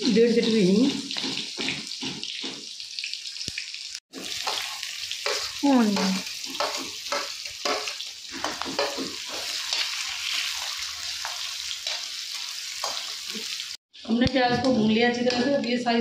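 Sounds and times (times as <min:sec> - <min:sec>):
hot oil sizzling: 0:00.0 - 0:16.0
metal spatula scraping: 0:04.3 - 0:13.6.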